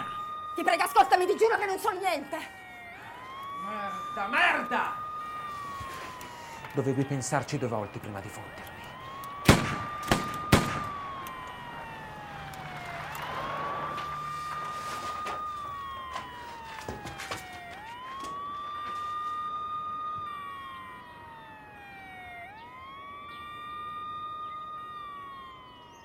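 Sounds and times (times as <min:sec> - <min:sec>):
police siren wailing: 0:00.0 - 0:26.0
sharp gunshots: 0:09.4 - 0:10.9.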